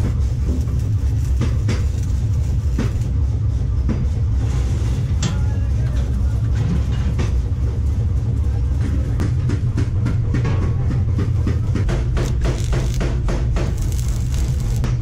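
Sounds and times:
welder humming: 0:00.0 - 0:03.2, 0:11.8 - 0:15.0
welding arc crackling: 0:00.0 - 0:03.2, 0:11.9 - 0:15.0.

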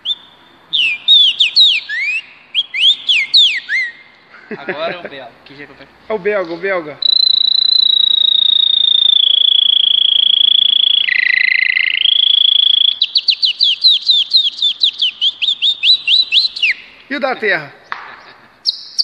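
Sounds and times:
man whistling birdsong: 0:00.0 - 0:04.1, 0:07.0 - 0:17.0.

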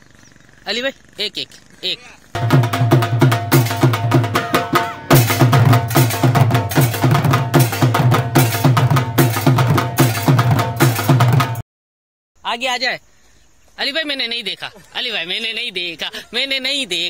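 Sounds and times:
fast dense drum beat: 0:02.4 - 0:11.6.

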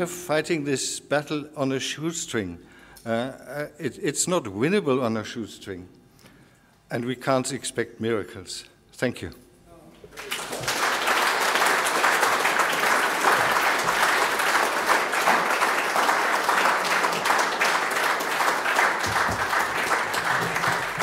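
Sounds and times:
audience applauding: 0:10.1 - 0:21.0.

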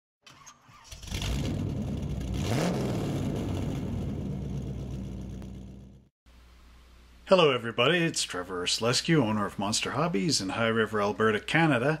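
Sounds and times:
car engine starting and running: 0:00.3 - 0:06.1.

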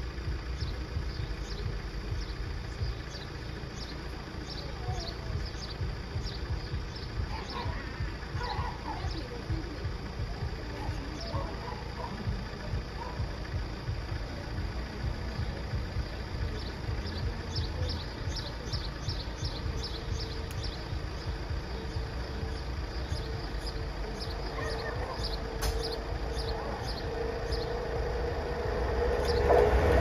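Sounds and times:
bird chirping: 0:00.0 - 0:30.0
low engine rumble: 0:00.0 - 0:30.0
steady hum: 0:00.0 - 0:30.0.

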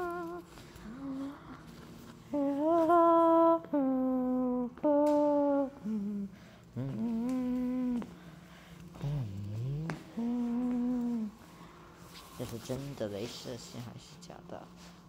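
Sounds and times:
person humming slow tune: 0:00.0 - 0:11.7.

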